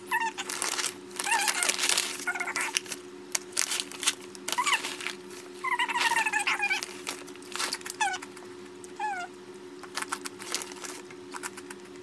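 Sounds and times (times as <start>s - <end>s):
plastic packet crinkling: 0.1s - 8.3s, 9.8s - 11.8s
cat meowing: 9.0s - 9.3s.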